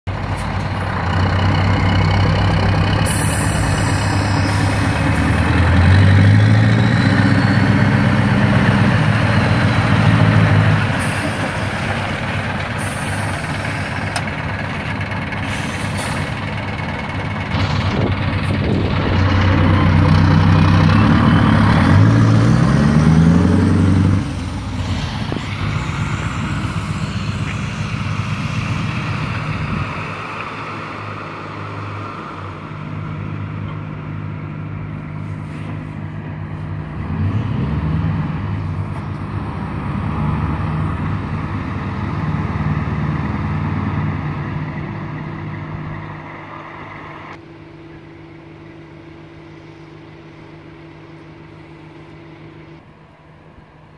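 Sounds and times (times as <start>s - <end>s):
truck diesel engine revving: 0.1s - 47.4s
short air hisses: 3.0s - 5.0s, 12.8s - 14.0s, 15.4s - 16.3s.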